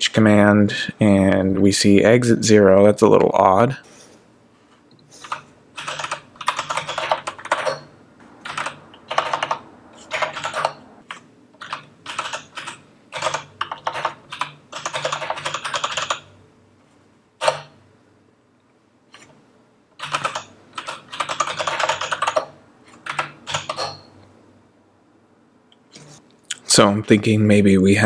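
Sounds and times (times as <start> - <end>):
computer keyboard typing: 5.2 - 16.3, 20.0 - 24.1.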